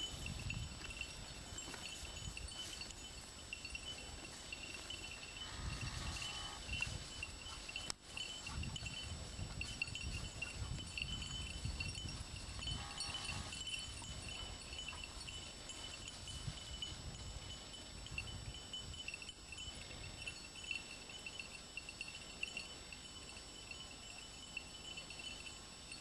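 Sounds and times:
small metal bells jingling: 0:00.0 - 0:26.0.

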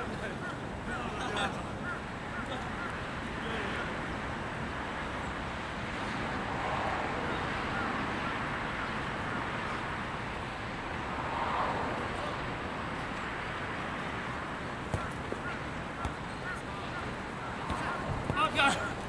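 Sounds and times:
distant players shouting: 0:14.9 - 0:19.0.

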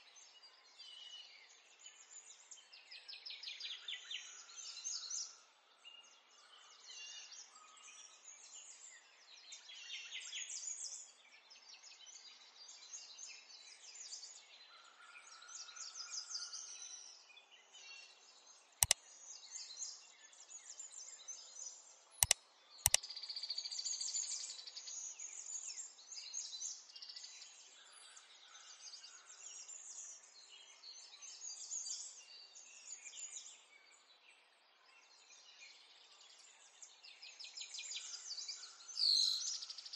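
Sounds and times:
birds chirping: 0:22.2 - 0:23.0
sharp clicks: 0:22.2 - 0:23.0.

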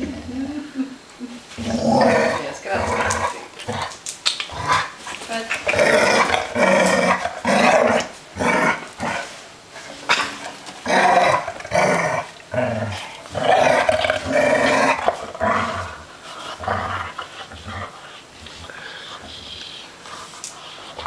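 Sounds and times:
dogs play-growling: 0:01.4 - 0:21.0.

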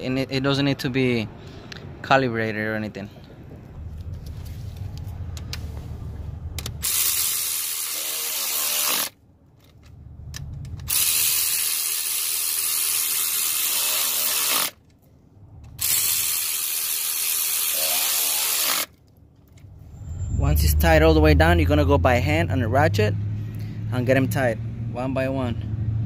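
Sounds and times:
low rumble: 0:00.7 - 0:06.8, 0:19.6 - 0:26.0
electric ratchet running: 0:06.6 - 0:09.2, 0:10.8 - 0:14.8, 0:15.8 - 0:19.0.

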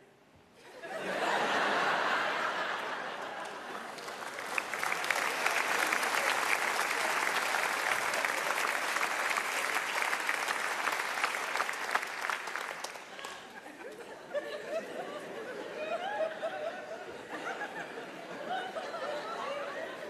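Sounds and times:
audience laughter: 0:00.7 - 0:08.9, 0:13.0 - 0:20.0
audience applause: 0:01.5 - 0:13.6.

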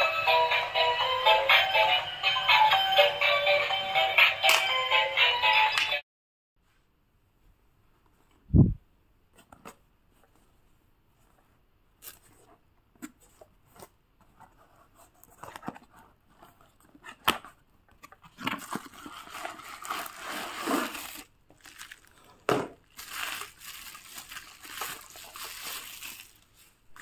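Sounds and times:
packaging crinkling and tearing: 0:18.3 - 0:27.0.

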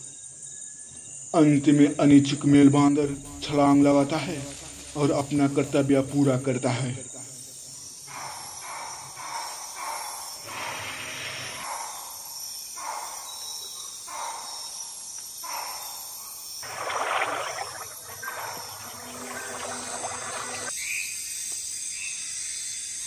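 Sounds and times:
insects hissing: 0:00.0 - 0:23.0
water splashing: 0:16.6 - 0:20.7.

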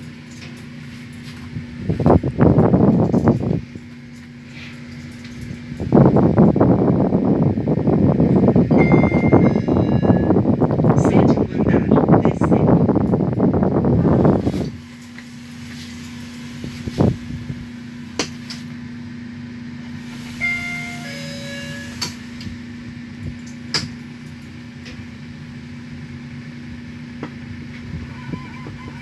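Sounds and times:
elevator drive humming: 0:00.0 - 0:29.0.

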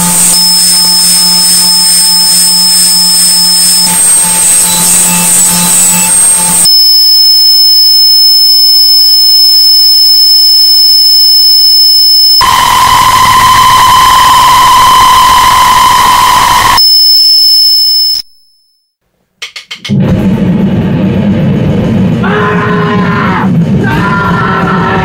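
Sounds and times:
harsh noise music: 0:00.0 - 0:06.6.

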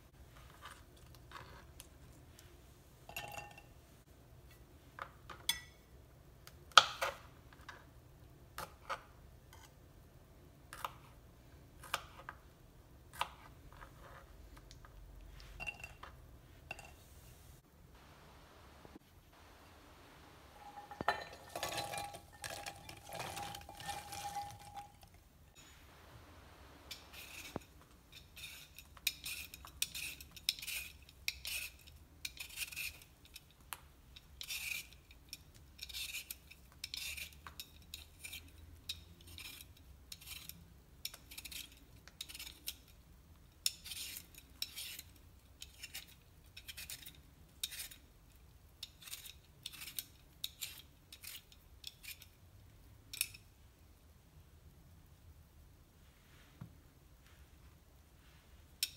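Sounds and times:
peeler scraping potato: 0:26.9 - 0:33.5, 0:34.2 - 0:43.0, 0:43.6 - 0:48.1, 0:48.8 - 0:52.4.

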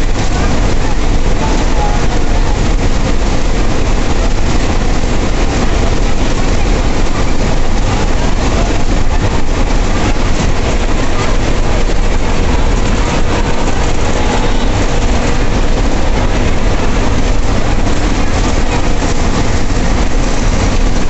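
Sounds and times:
bus engine droning: 0:00.0 - 0:21.0
road and cabin noise: 0:00.0 - 0:21.0.

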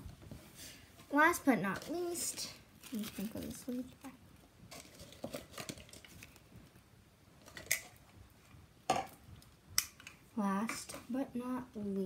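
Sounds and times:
leaves rustling on wooden floor: 0:02.1 - 0:04.0.

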